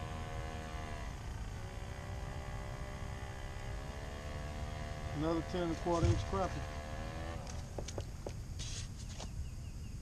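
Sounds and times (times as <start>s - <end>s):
motor humming: 0.0s - 8.3s.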